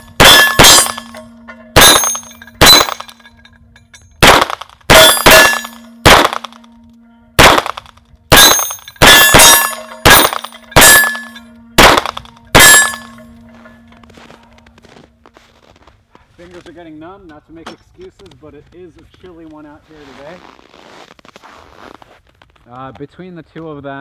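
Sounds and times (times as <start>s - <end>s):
steel gong ringing: 0.0s - 3.1s, 8.3s - 14.6s
pistol shots: 0.2s - 1.2s, 1.8s - 3.2s, 4.2s - 6.6s, 7.4s - 13.1s.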